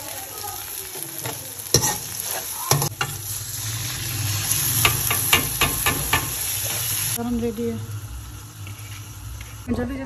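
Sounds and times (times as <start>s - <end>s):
masala sizzling in a pan: 0.0s - 10.0s
metal ladle knocking on pan: 4.8s - 6.4s.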